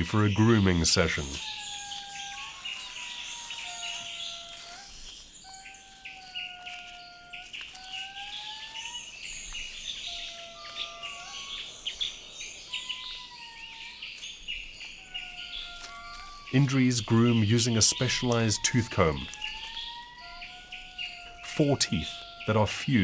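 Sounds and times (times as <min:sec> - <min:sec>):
bird chirps: 0:00.0 - 0:23.0
insect ticks: 0:00.0 - 0:23.0
long whistled notes: 0:00.0 - 0:23.0.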